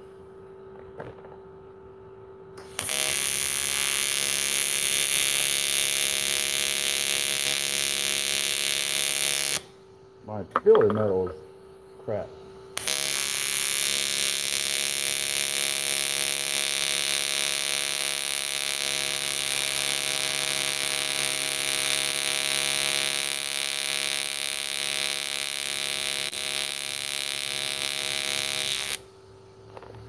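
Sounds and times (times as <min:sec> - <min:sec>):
welding arc buzzing: 0:02.6 - 0:09.8, 0:12.7 - 0:29.1.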